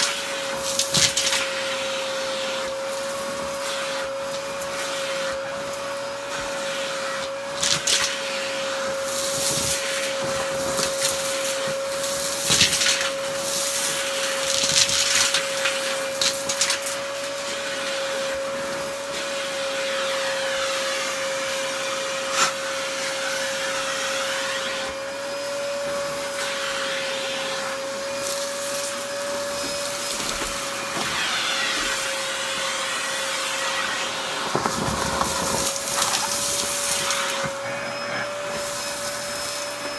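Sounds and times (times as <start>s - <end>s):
vacuum cleaner running: 0.0s - 39.9s
debris crackling in vacuum: 33.2s - 37.7s.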